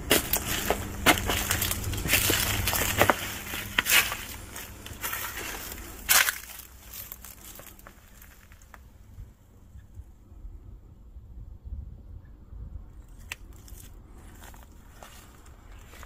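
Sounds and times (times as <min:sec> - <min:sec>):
leaves crunching underfoot: 0:00.0 - 0:08.8.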